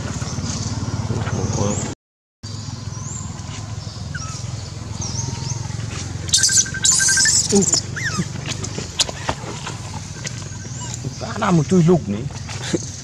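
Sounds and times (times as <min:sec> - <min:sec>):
bird chirps: 0:01.4 - 0:11.8
short gliding calls: 0:02.7 - 0:11.3.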